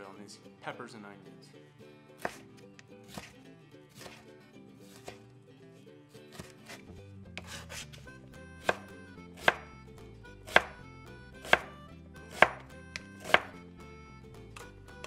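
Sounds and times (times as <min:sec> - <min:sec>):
faint background music: 0:00.0 - 0:15.0
knife chopping on cutting mat: 0:02.2 - 0:02.5, 0:03.1 - 0:03.4, 0:04.0 - 0:04.2, 0:04.9 - 0:05.2, 0:06.3 - 0:08.0, 0:08.6 - 0:09.7, 0:10.4 - 0:10.8, 0:11.4 - 0:13.6.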